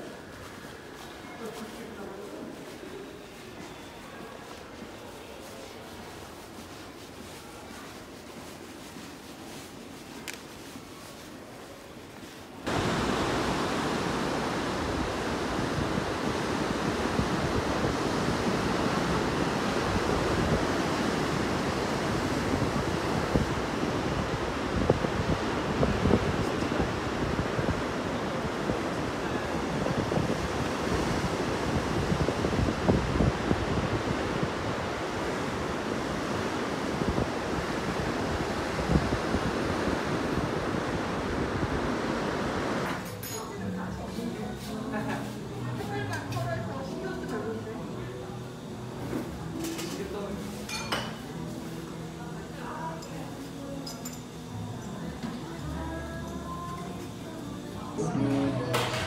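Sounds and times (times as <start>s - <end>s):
surf washing over rocks: 12.6s - 43.0s
surf breaking on rocks: 12.7s - 23.8s
wind buffeting microphone: 12.8s - 42.8s.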